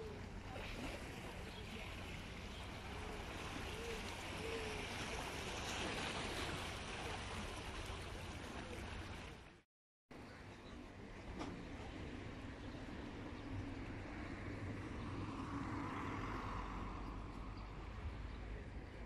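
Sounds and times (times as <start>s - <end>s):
water washing against rocks: 0.5s - 9.5s.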